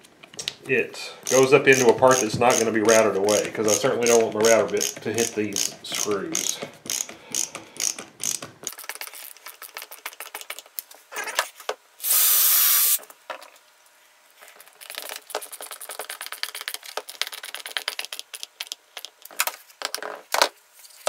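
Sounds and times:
ratcheting screwdriver clicking: 0:01.2 - 0:08.5
loud hiss: 0:12.0 - 0:13.0.

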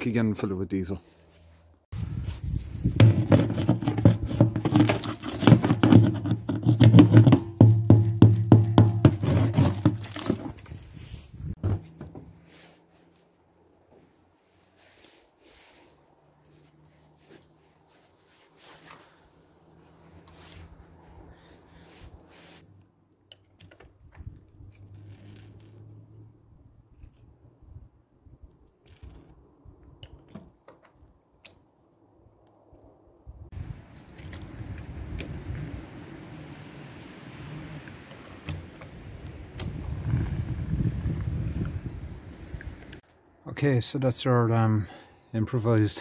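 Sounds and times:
barrel pump handling noises: 0:02.9 - 0:10.8
ice crunching and cracking: 0:09.2 - 0:10.7.

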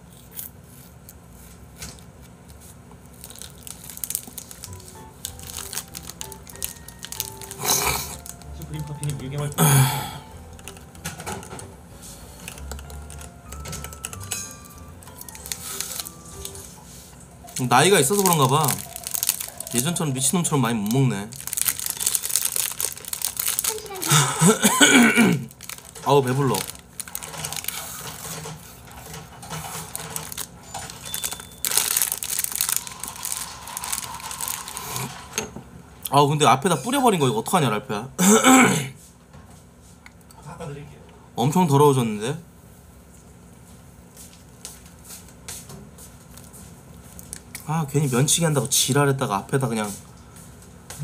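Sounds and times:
plastic crinkling: 0:00.1 - 0:09.6, 0:10.4 - 0:35.4, 0:46.0 - 0:48.4
soft background music: 0:03.3 - 0:27.7.

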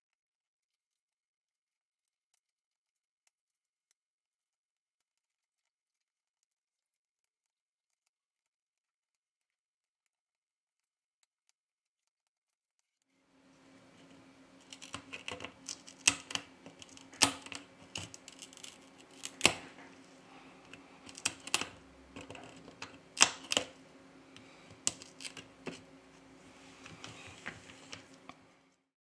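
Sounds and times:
steady low hum: 0:13.4 - 0:28.9.

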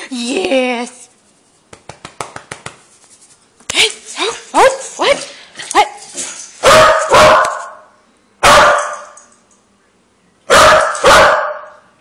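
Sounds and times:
dog barking loudly: 0:06.6 - 0:09.2, 0:10.5 - 0:11.8.

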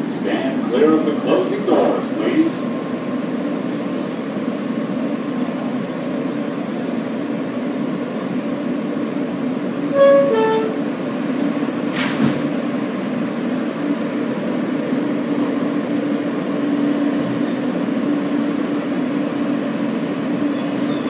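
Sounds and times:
train wheels rumbling: 0:01.2 - 0:21.0
train horn toot: 0:09.9 - 0:11.0.

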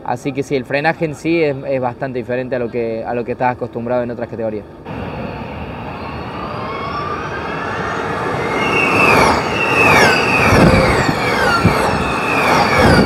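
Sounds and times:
electric race cars whining past: 0:04.8 - 0:13.0
tyre and road noise: 0:04.9 - 0:13.0.

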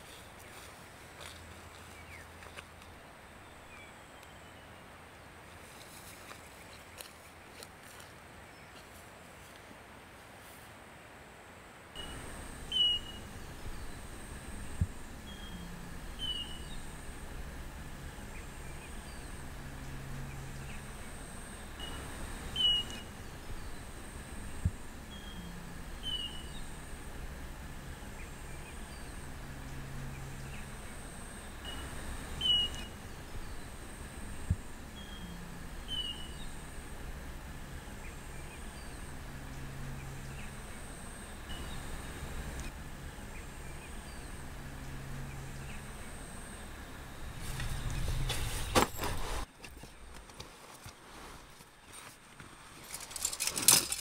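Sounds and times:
steady hiss and low hum: 0:00.0 - 0:54.0
bird chirps: 0:12.0 - 0:14.4, 0:15.2 - 0:17.1, 0:18.2 - 0:24.0, 0:24.6 - 0:26.8, 0:30.1 - 0:33.8, 0:35.0 - 0:36.7.

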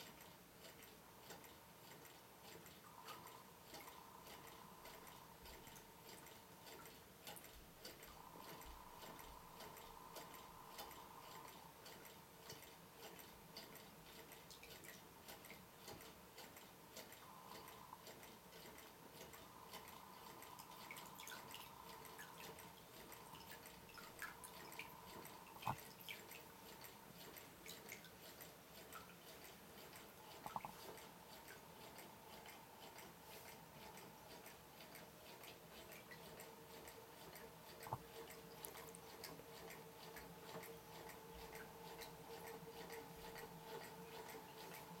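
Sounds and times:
water dripping into bucket: 0:19.8 - 0:26.9.

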